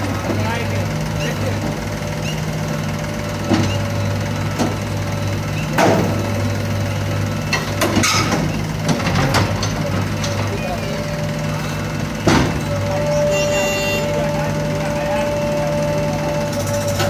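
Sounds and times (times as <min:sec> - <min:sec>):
diesel engine running: 0:00.0 - 0:17.0
sharp knocks and clanks: 0:03.4 - 0:03.8, 0:05.6 - 0:06.3, 0:07.5 - 0:10.6, 0:12.2 - 0:12.8.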